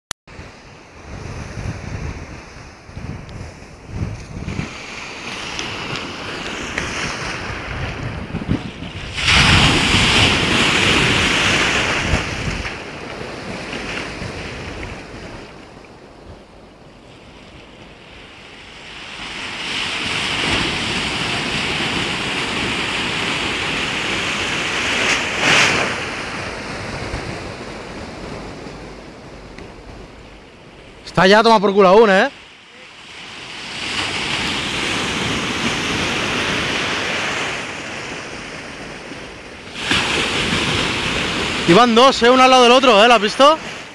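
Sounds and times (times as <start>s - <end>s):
wind buffeting microphone: 0.3s - 31.0s
sea waves breaking on shore: 0.3s - 43.9s.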